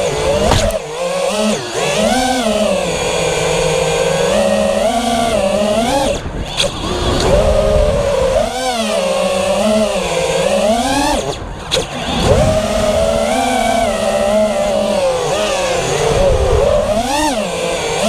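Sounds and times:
quadcopter motors whining: 0.0 - 18.0.

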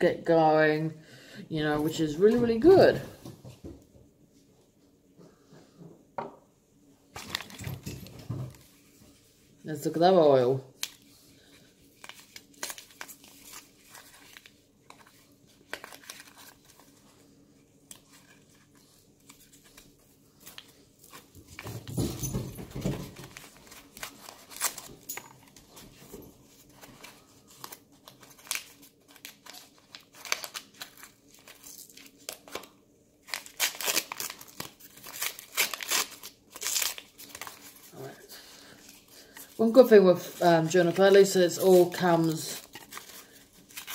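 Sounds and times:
paper crinkling and tearing: 7.1 - 7.6, 10.8 - 17.2, 17.8 - 21.3, 23.1 - 25.8, 26.4 - 43.9.

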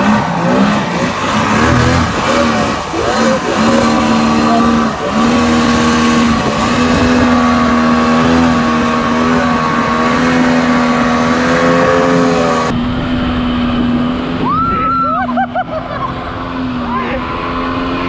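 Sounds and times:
outboard motor running: 0.0 - 18.0.

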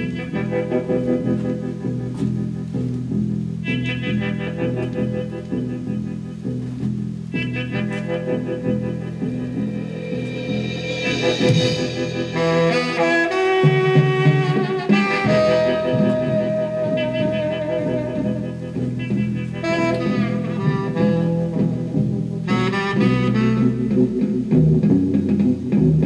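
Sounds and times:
record player music: 0.0 - 12.8.

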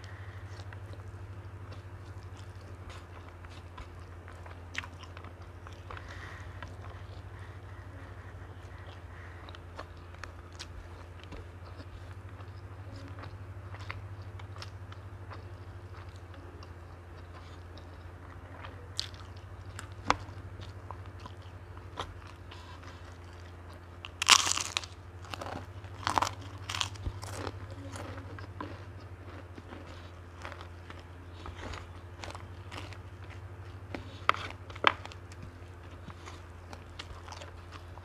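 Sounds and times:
quiet chewing with mouth clicks: 0.0 - 38.0
steady low hum: 0.0 - 38.0
crispy cracker crunching: 8.5 - 38.0.

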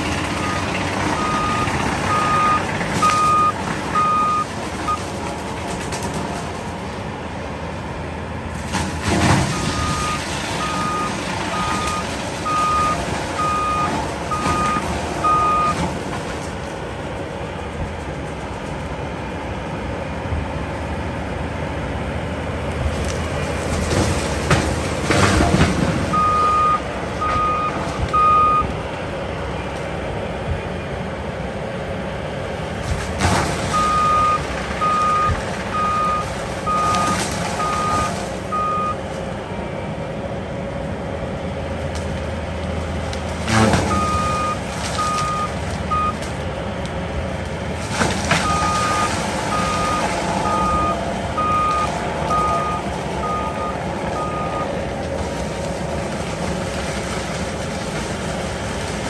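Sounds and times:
track loader engine running: 0.0 - 59.0
backup alarm beeping: 0.4 - 5.0, 9.5 - 15.8, 26.1 - 28.7, 43.8 - 46.2, 48.4 - 54.7
loud crashes of brush mulched: 8.5 - 16.7, 22.9 - 28.1, 32.8 - 39.3, 42.9 - 46.5, 47.4 - 59.0.

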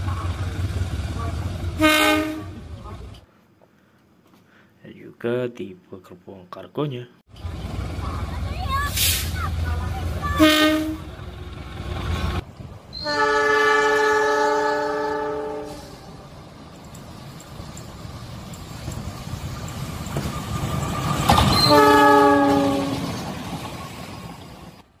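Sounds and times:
passing train noise: 0.0 - 3.3, 7.3 - 25.0
locomotive horn blasts: 1.2 - 2.6, 10.3 - 11.2, 13.0 - 16.0, 21.6 - 23.1.

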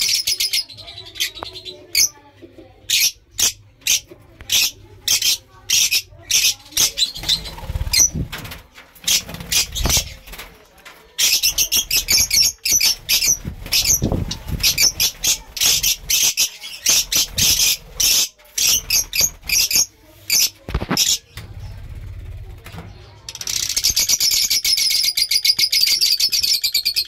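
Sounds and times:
lovebirds chirping: 0.0 - 8.4, 11.1 - 22.1.

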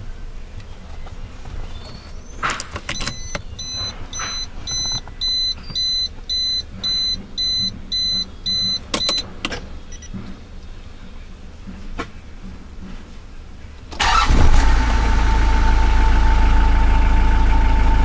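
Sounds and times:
car key reminder beeping: 2.4 - 10.1
key and ignition switch clicks: 2.4 - 10.1.

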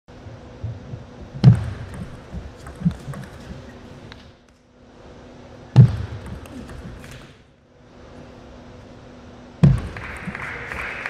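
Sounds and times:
heavy low thumps: 0.1 - 2.9
steady low hum: 0.1 - 11.0
ping pong ball clicking: 1.4 - 3.6.

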